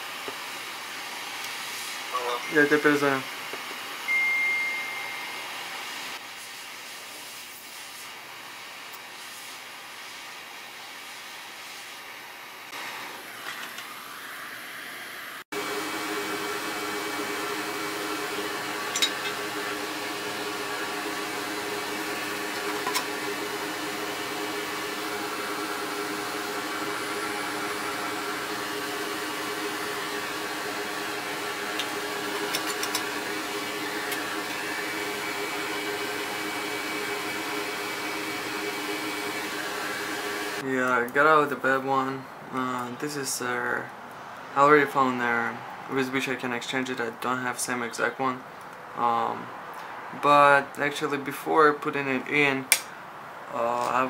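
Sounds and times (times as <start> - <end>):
electric blower whirring: 15.5 - 40.6.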